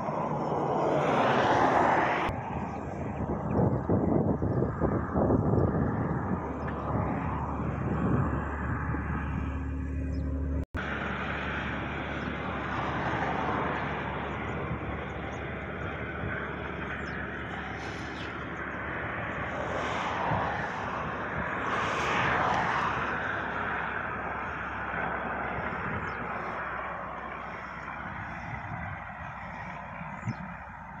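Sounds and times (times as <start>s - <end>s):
excavator diesel engine running: 7.8s - 19.4s.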